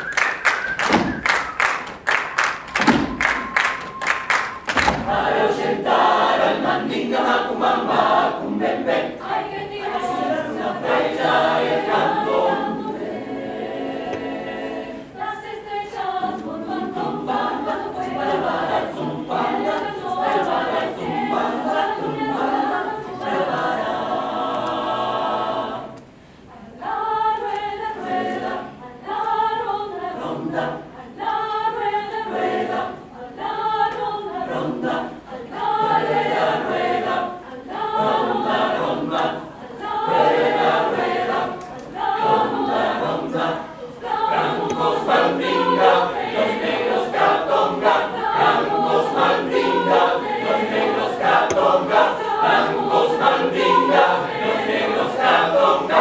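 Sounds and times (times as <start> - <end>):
hand clap: 0.0 - 5.2
mixed choir singing a cappella: 0.0 - 56.0.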